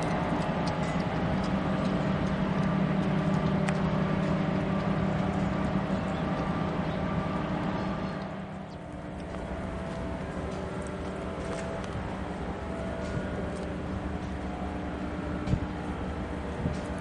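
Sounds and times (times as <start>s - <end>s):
diesel locomotives droning: 0.0s - 17.0s.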